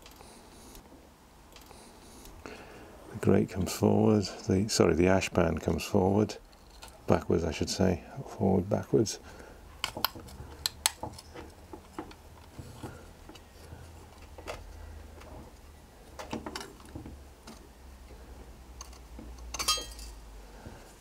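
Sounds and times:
low steady hum: 0.0 - 21.0
sharp metal clink: 19.6 - 20.1.

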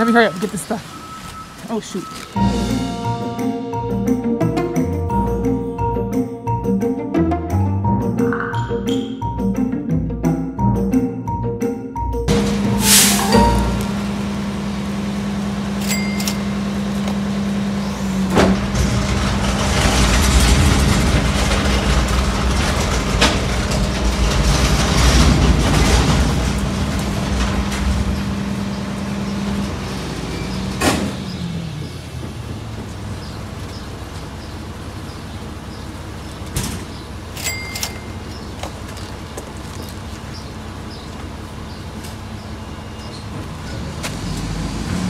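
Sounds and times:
truck diesel engine humming: 0.0 - 45.0.

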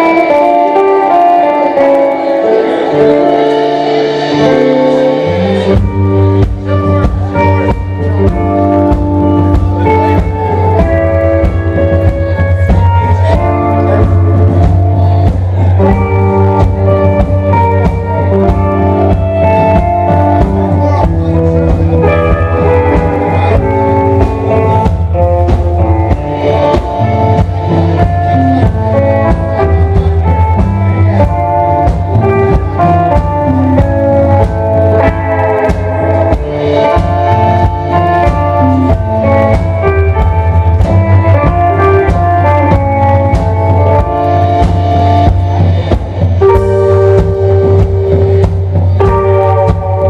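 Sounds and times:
drum kit: 0.0 - 50.0
electric guitars playing: 0.0 - 50.0.

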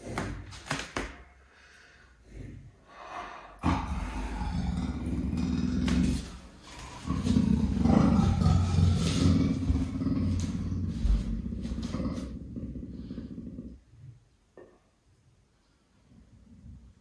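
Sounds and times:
big cat growling low: 3.6 - 13.8.

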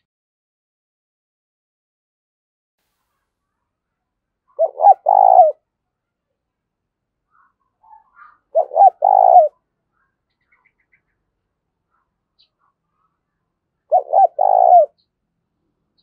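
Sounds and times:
dove cooing: 4.5 - 5.6, 7.8 - 9.6, 13.9 - 15.0.

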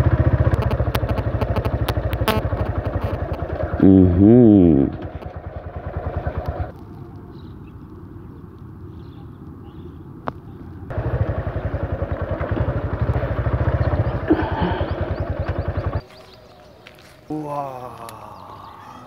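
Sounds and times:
motorcycle engine running: 0.0 - 7.5, 10.9 - 17.6.

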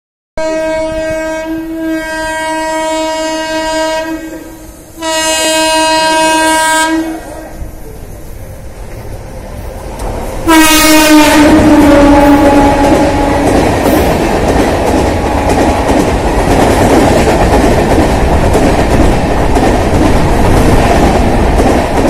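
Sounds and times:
train horn blasts: 0.4 - 7.4, 10.4 - 13.7
train rumbling on rails: 0.4 - 22.0.

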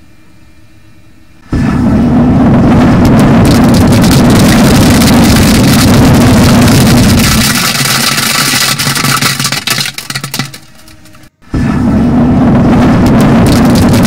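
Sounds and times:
flame jet rushing: 1.4 - 8.8, 11.6 - 14.0.

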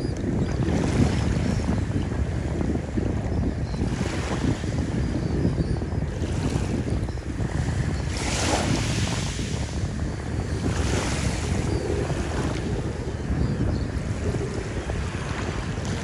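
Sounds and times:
wind buffeting microphone: 0.0 - 16.0
small waves washing on shore: 6.1 - 16.0.

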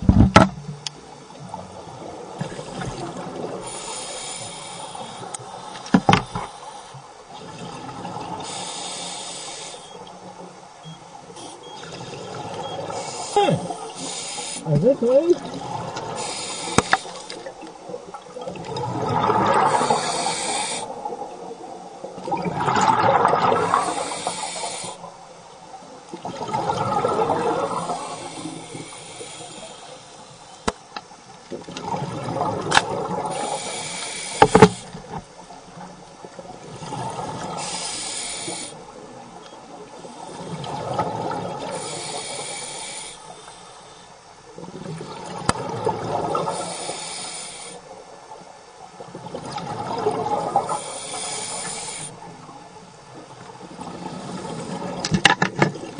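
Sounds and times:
scuba regulator breathing underwater: 2.4 - 7.1, 8.3 - 10.0, 11.4 - 14.8, 15.7 - 17.6, 18.9 - 21.1, 23.5 - 25.1, 26.9 - 30.6, 33.1 - 35.2, 36.8 - 38.9, 39.9 - 44.2, 46.1 - 48.0, 49.9 - 52.4.

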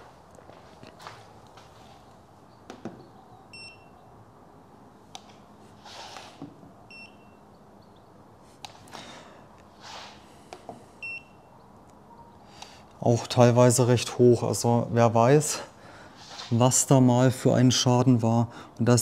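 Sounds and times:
short electronic beeps: 3.5 - 4.0, 6.9 - 7.4.

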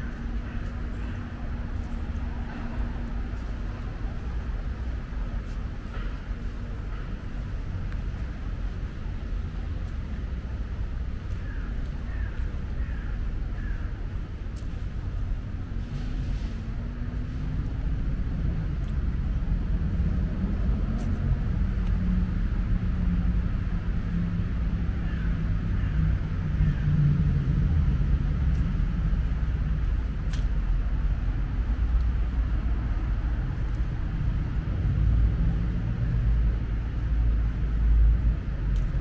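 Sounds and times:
city road traffic rumble: 0.0 - 39.0.

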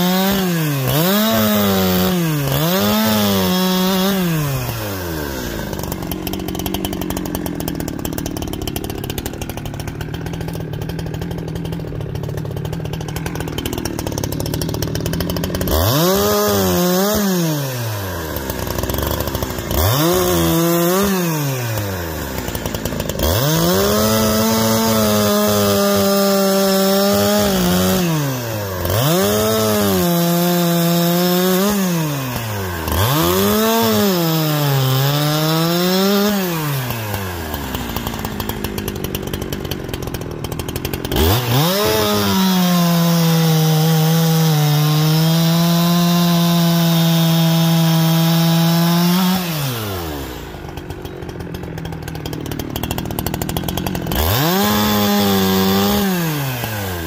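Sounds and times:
chainsaw cutting logs: 0.0 - 57.0.

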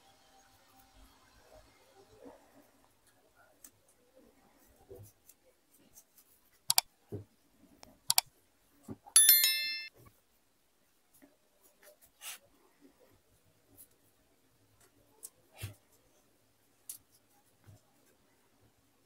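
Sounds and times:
electronic chime descending tones: 9.2 - 9.9.

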